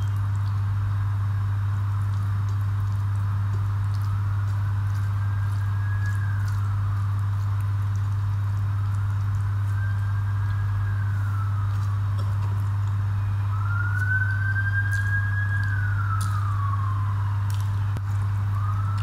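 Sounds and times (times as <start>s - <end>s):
strong low hum: 0.0s - 19.0s
fingers mixing food on a plate: 1.9s - 16.6s
faint rising and falling tone: 8.6s - 19.0s.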